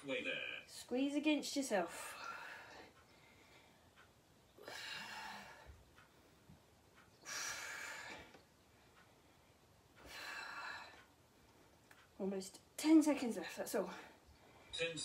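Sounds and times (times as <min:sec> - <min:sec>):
woman breathing hard: 0:04.6 - 0:06.5, 0:07.2 - 0:11.2.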